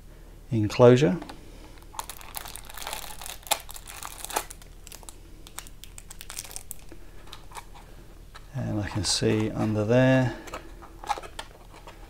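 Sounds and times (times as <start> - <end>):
plastic bag crinkling: 1.8 - 7.9.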